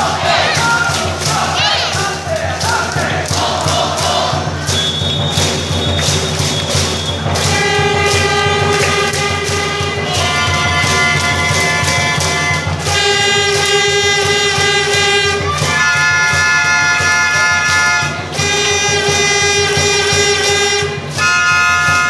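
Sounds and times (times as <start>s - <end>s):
crowd hum: 0.0s - 22.0s
trumpet playing long notes: 7.4s - 22.0s.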